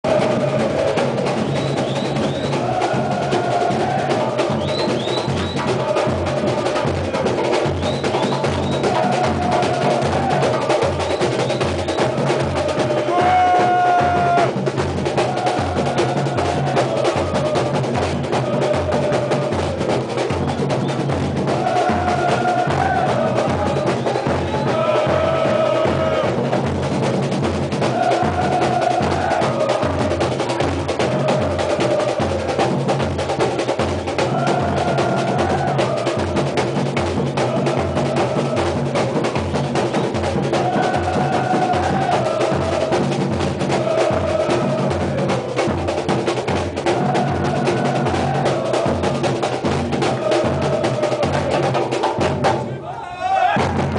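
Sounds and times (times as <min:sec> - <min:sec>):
crowd singing a chant: 0:00.0 - 0:27.0, 0:27.6 - 0:53.7
bass and snare drums beating: 0:00.0 - 0:53.9.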